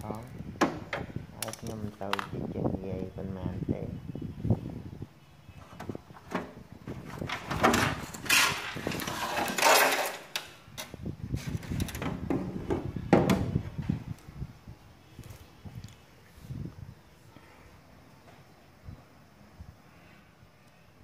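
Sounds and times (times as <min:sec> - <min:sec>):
hard plastic scraping and knocking: 0:05.6 - 0:14.0.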